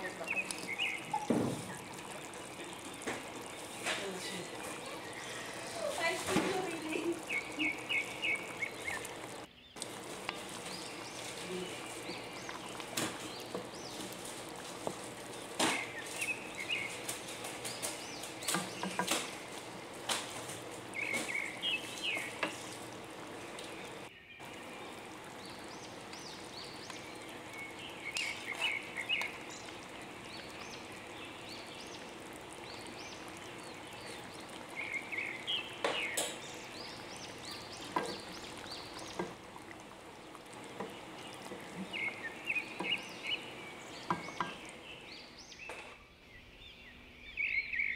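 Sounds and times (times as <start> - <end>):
stew bubbling in a wok: 0.0 - 46.0
steady background hiss: 0.0 - 47.9.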